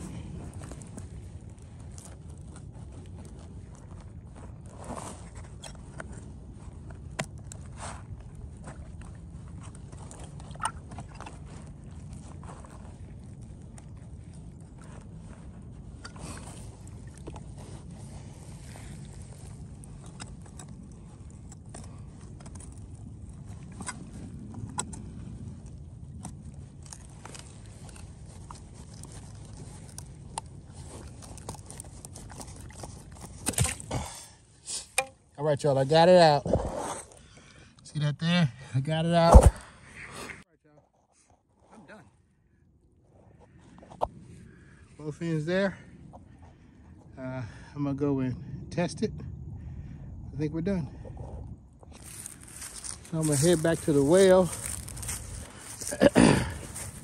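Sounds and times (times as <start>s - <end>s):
steady low hum: 0.0s - 40.8s, 41.4s - 57.0s
clothing rustle: 51.9s - 57.0s.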